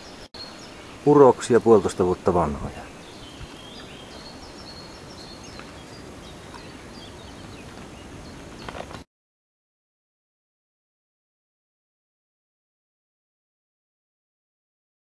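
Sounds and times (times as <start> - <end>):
small birds chirping: 0.0 - 9.0
steady outdoor hiss: 0.0 - 9.0.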